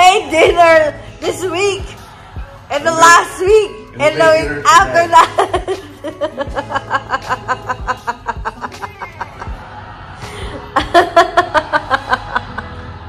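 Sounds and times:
background music: 0.0 - 13.0
person laughing hard: 5.4 - 9.7, 10.3 - 12.8.

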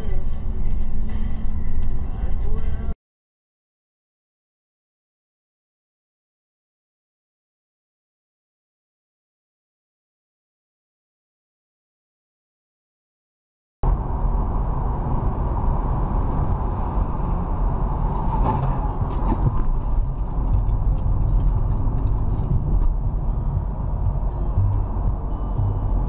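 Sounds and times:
car road and engine noise: 0.0 - 3.0, 13.8 - 26.0.

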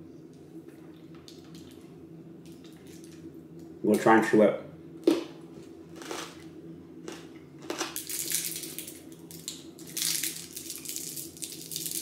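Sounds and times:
plastic candy wrapper crinkling: 7.7 - 12.0.

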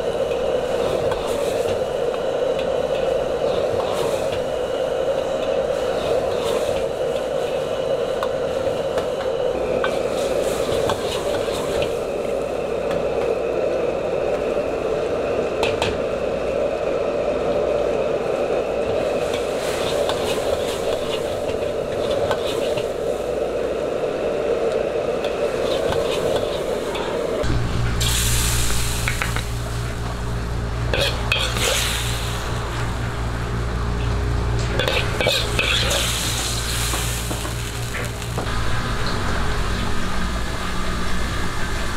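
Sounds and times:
gas burner rushing: 0.0 - 41.9
low mechanical hum: 0.0 - 41.9
sauce bubbling and sizzling in wok: 27.4 - 41.9
metal ladle scraping a wok: 30.9 - 32.1, 34.6 - 38.0.

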